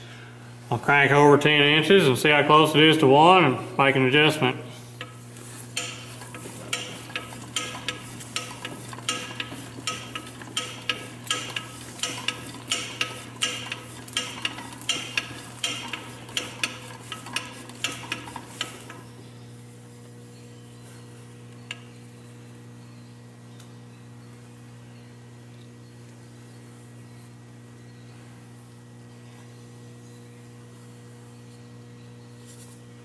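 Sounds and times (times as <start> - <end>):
lathe carriage scraping clicks: 5.0 - 19.1.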